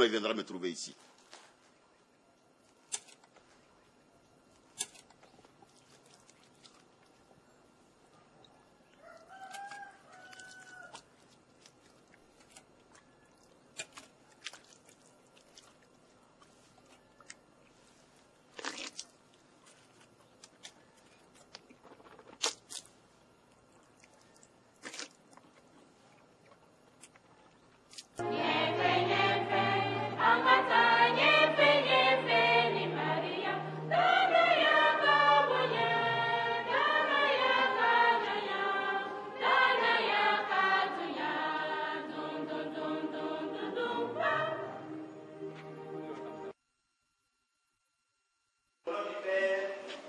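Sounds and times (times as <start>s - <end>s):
faint crunches and clicks: 8.4s - 28.2s.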